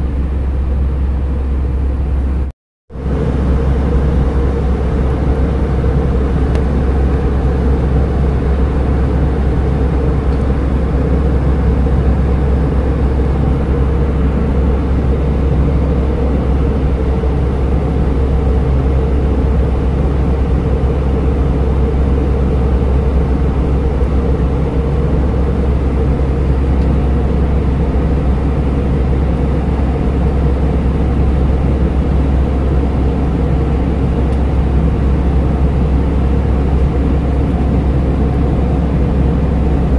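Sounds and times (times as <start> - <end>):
aircraft cabin drone: 0.0 - 39.9.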